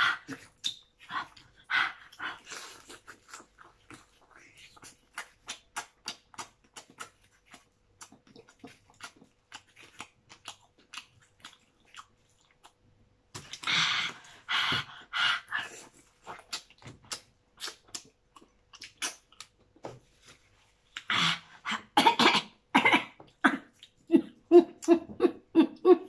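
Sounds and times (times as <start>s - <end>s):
wet chewing and lip smacks: 0.3s - 19.8s, 23.3s - 24.1s.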